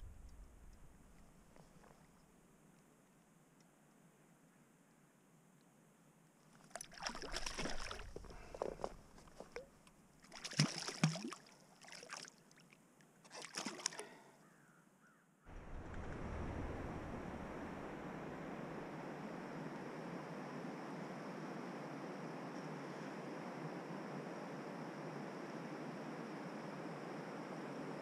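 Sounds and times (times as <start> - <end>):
steady rushing noise: 0.0 - 1.2, 15.5 - 22.4
water splashing and sloshing: 6.5 - 14.2, 15.5 - 18.3.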